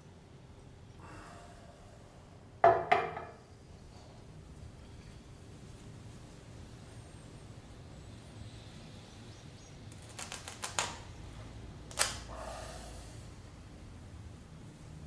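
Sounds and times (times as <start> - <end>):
cloth ripping: 10.0 - 11.0.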